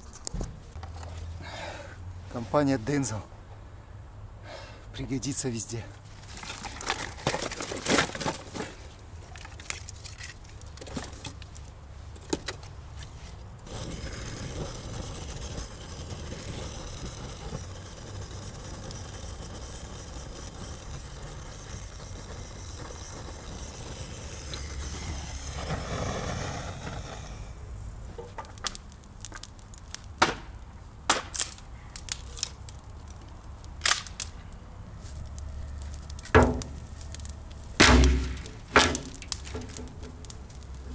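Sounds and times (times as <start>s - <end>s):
dry wood cracking and snapping: 6.1s - 14.8s, 28.2s - 40.9s
steady hissing noise: 8.6s - 40.9s.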